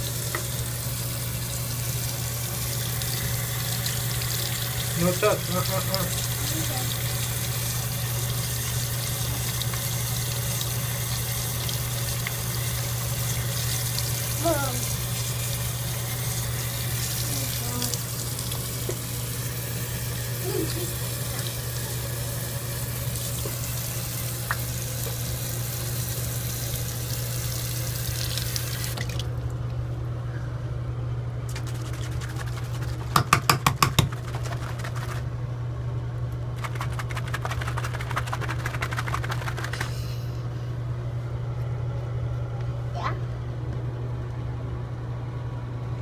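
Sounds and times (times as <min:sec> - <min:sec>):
tap running into sink: 0:33.1 - 0:34.2
rapid crackling: 0:34.0 - 0:35.3, 0:36.6 - 0:40.0.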